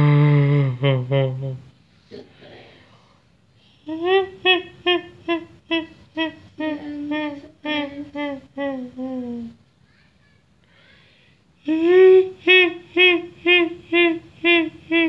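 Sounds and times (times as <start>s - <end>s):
person humming eerie tune: 0.0s - 1.7s, 3.8s - 9.6s, 11.6s - 15.0s.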